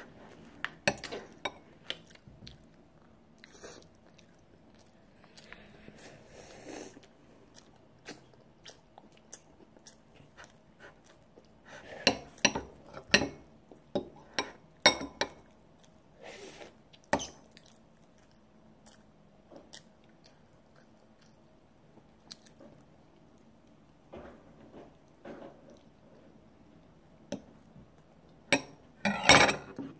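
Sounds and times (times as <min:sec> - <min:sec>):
child chewing: 0:00.0 - 0:14.4, 0:15.2 - 0:24.0.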